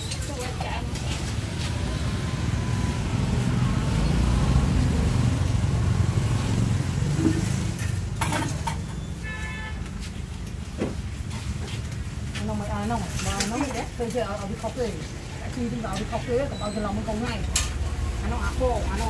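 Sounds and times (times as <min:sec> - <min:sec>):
vehicle engine passing by: 0:00.9 - 0:08.2.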